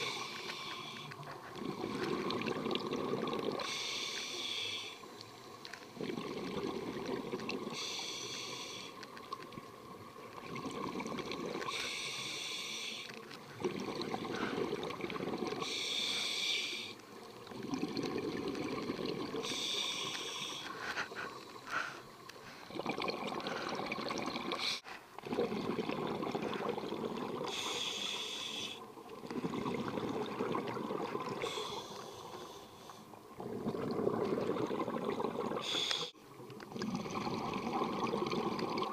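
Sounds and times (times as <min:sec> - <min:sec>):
regulator inhalation hiss: 0:00.0 - 0:01.1, 0:03.6 - 0:05.1, 0:07.7 - 0:09.0, 0:11.7 - 0:13.1, 0:15.6 - 0:17.0, 0:19.4 - 0:22.1, 0:27.5 - 0:28.8, 0:31.4 - 0:33.0, 0:35.6 - 0:36.2
exhaled bubbles gurgling: 0:00.0 - 0:32.6, 0:33.2 - 0:38.9.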